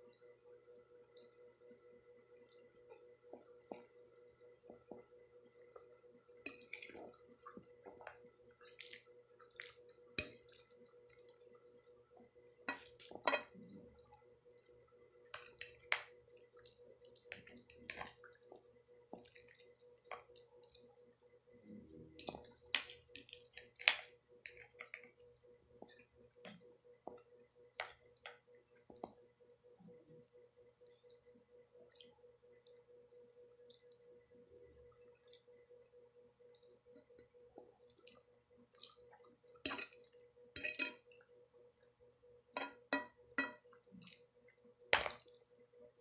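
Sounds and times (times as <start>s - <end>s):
faint steady hum: 0.0s - 46.0s
wet chewing and mouth clicks: 6.5s - 32.6s, 36.4s - 40.3s
fork clinking and scraping plate: 12.7s - 13.6s, 39.7s - 41.0s, 42.6s - 43.6s.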